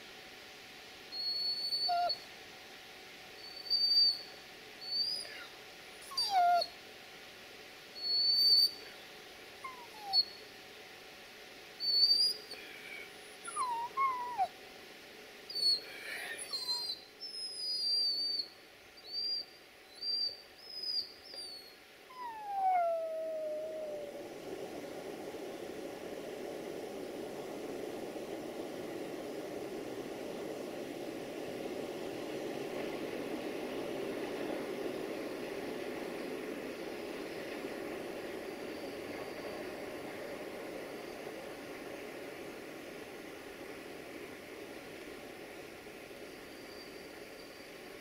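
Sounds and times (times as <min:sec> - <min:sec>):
dog whimpering: 0:01.2 - 0:02.2, 0:04.9 - 0:06.8, 0:09.6 - 0:10.4, 0:13.5 - 0:14.5, 0:15.5 - 0:18.4, 0:20.9 - 0:24.1.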